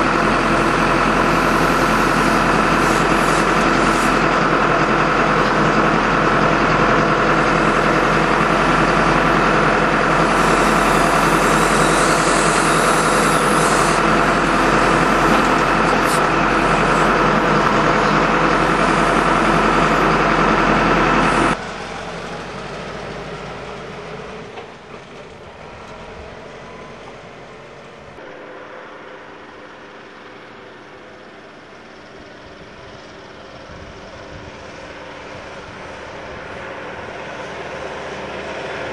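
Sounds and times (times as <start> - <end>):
diesel tractor engine running: 0.0 - 38.9
distant tractor driving: 0.0 - 38.9
hiss: 10.2 - 14.0.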